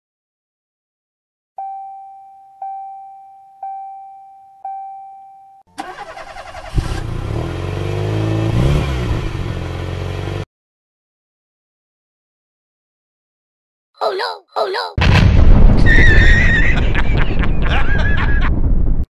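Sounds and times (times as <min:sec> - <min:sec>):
short pitched beeps: 0:01.6 - 0:05.6.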